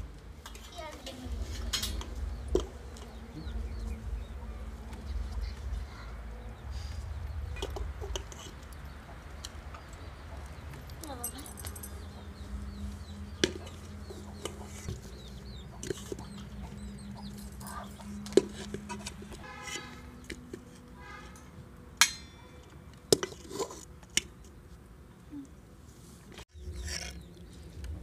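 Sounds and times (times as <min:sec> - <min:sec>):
small birds chirping: 0:00.7 - 0:20.5, 0:26.5 - 0:28.0
hen clucking: 0:13.5 - 0:18.2.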